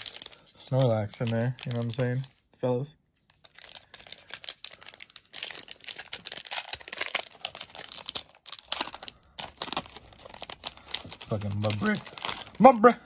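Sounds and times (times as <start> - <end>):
foil wrapper crinkling and tearing: 0.0 - 2.4, 3.3 - 13.0.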